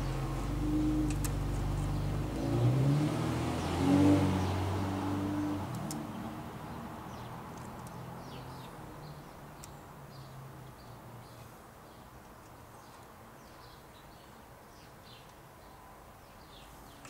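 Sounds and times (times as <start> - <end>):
passing vehicle engine hum: 0.0 - 9.5
small birds chirping: 0.0 - 17.0.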